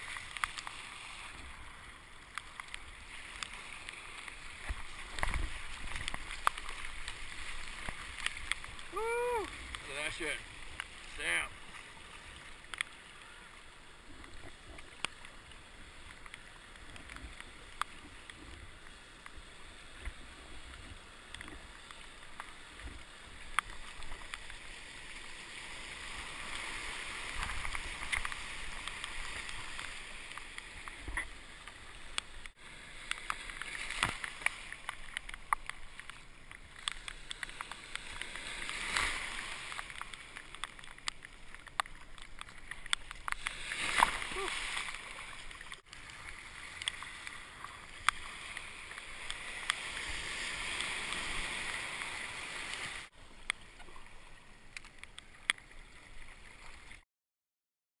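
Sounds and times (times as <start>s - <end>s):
water rushing along kayak hull: 0.0s - 57.0s
sharp splashes and knocks: 33.0s - 52.1s.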